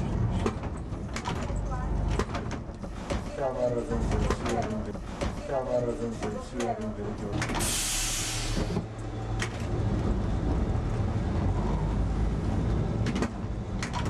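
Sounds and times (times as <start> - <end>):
tram rumbling on track: 0.0 - 14.0
burst of hiss: 7.6 - 8.7.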